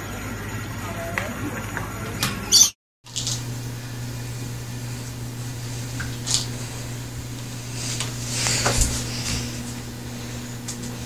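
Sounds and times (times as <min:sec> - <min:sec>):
low background hum: 0:03.1 - 0:11.0
soft rustling: 0:03.1 - 0:11.0.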